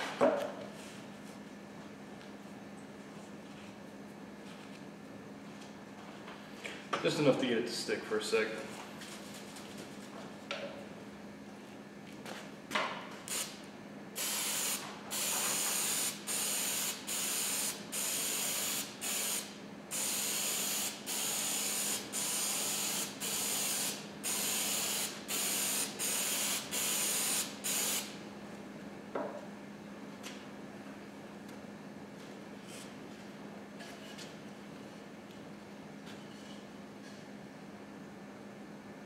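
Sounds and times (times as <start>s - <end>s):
aerosol can hissing bursts: 13.3s - 13.5s, 14.2s - 28.1s.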